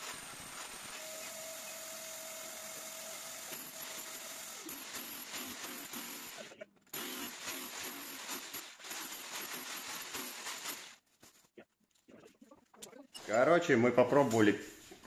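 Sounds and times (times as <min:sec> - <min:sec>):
rotary hammer drilling into wall: 0:00.0 - 0:11.0.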